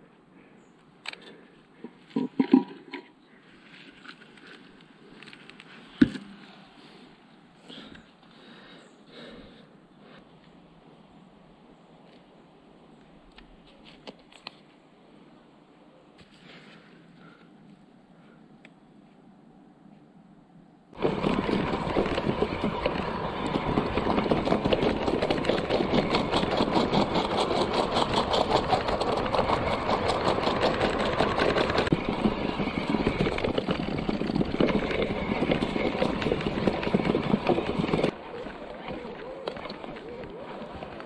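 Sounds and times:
bike rattling over sleepers: 21.0s - 41.0s
wheels knocking on sleepers: 21.0s - 41.0s.

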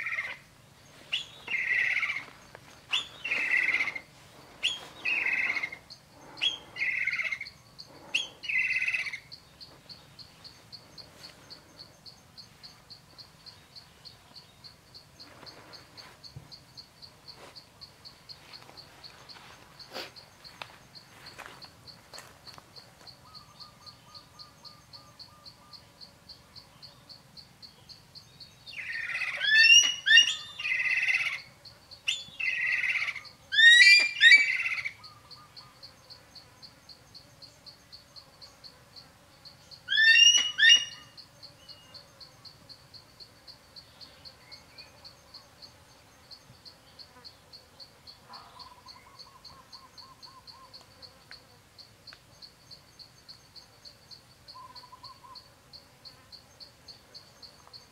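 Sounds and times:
eagle calling: 0.0s - 0.4s, 1.1s - 9.4s, 28.8s - 31.5s, 32.1s - 35.8s, 39.9s - 41.2s, 54.6s - 55.4s
insect chirping: 0.0s - 57.9s.

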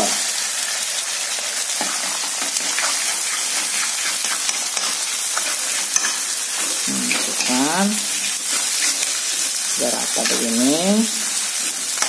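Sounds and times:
food sizzling in a wok: 0.0s - 12.0s
spatula scraping a pan: 1.7s - 10.7s.

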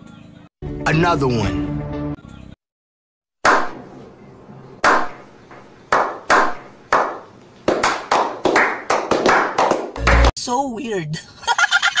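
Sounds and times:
slow hand clapping: 5.9s - 10.3s.

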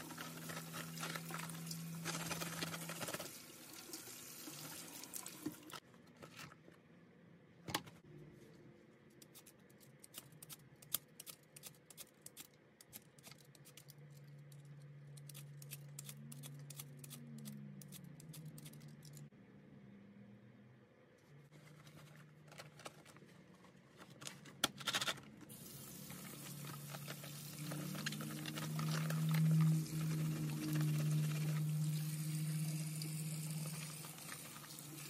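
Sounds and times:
scrubbing with rubber gloves: 0.0s - 3.4s, 25.7s - 32.1s
kitchen tap running: 1.0s - 5.8s, 30.8s - 35.0s
vegetable peeler scraping skin: 15.2s - 18.8s.

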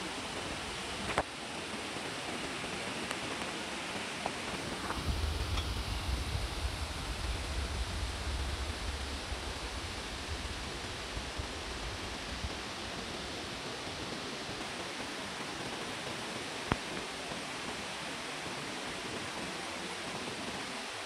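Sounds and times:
stream water rushing: 0.0s - 21.0s
low rumble: 4.7s - 13.4s.

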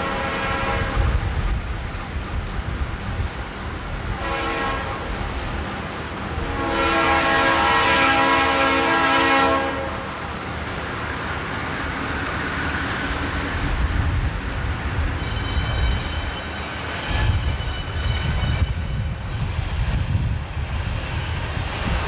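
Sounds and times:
train air horn blasts: 0.0s - 1.1s, 4.2s - 5.1s, 6.4s - 10.1s.

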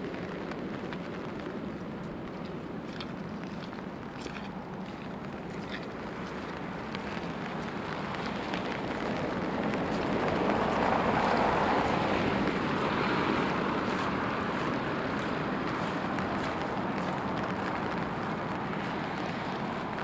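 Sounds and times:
tyres hissing on wet street: 0.0s - 20.0s.

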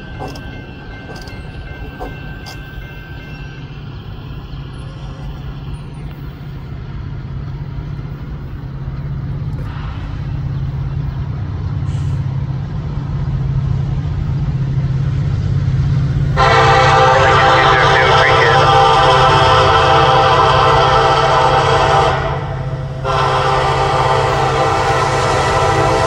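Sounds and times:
diesel locomotive engine rumble: 0.0s - 26.0s
locomotive air horn blast: 16.4s - 26.0s.

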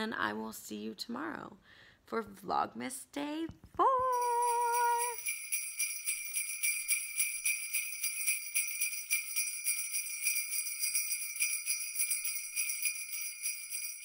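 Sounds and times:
jingle bells shaken: 4.0s - 14.0s.

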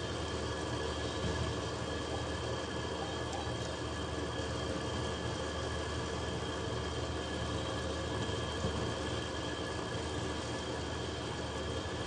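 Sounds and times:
faint whining tones: 0.0s - 6.1s
mechanical hum: 0.0s - 12.0s.

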